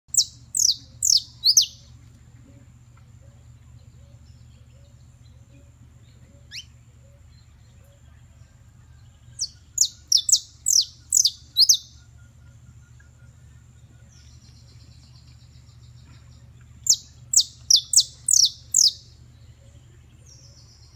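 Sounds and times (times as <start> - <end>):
finch whistling song: 0.1 - 1.9, 5.6 - 8.1, 9.4 - 13.6, 16.8 - 20.9.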